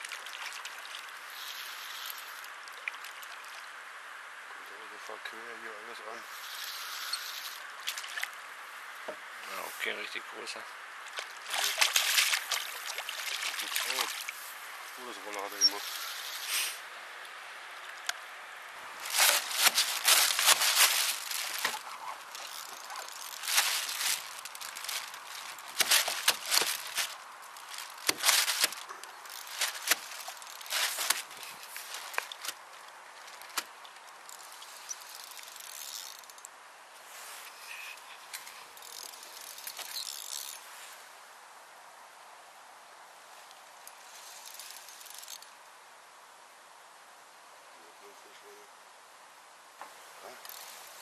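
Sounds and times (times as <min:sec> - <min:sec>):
fishing reel clicking: 0:06.4 - 0:07.6, 0:34.3 - 0:36.5, 0:44.2 - 0:45.4.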